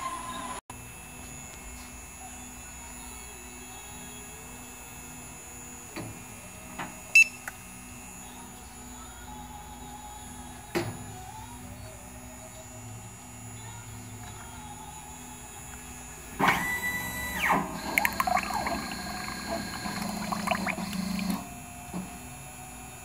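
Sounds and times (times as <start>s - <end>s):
low steady hum: 7.1s - 23.0s
paint tinting machine whining: 11.3s - 23.0s.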